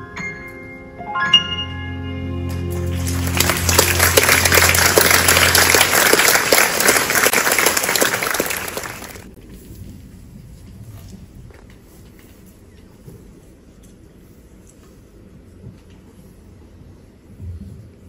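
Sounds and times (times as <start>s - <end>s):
grand piano chord ringing: 0.0s - 5.9s
audience applauding: 2.7s - 9.4s.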